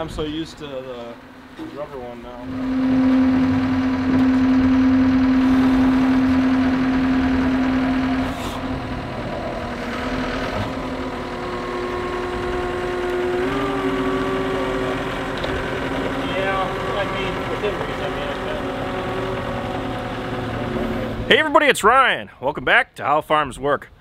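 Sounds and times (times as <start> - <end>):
steady hum: 0.0 - 21.6
diesel engine running: 0.0 - 21.9.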